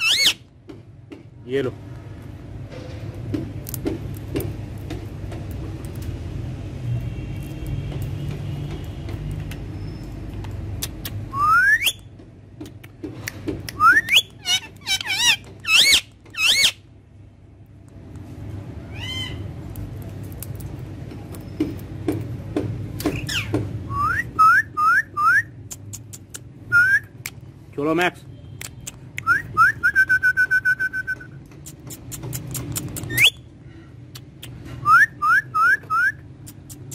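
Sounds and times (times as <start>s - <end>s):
parakeet whistling and calling: 0.0s - 0.4s, 11.3s - 12.1s, 13.8s - 16.8s, 18.9s - 19.4s, 23.1s - 25.6s, 33.0s - 33.5s, 34.8s - 36.2s
low background hum: 0.0s - 36.9s.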